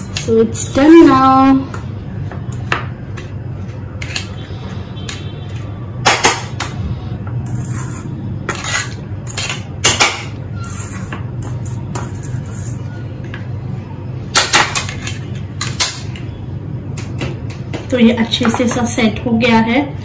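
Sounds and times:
spoon scraping metal tin: 7.4s - 9.4s.

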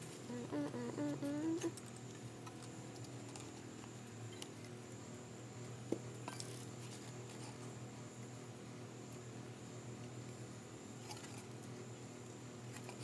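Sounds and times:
steady low hum: 0.0s - 12.7s.

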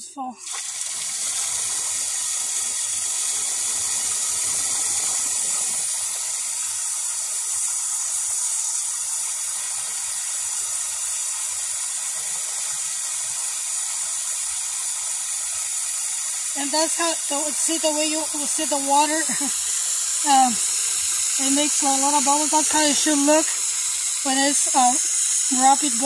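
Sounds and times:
hose spray hitting water: 0.4s - 26.0s.

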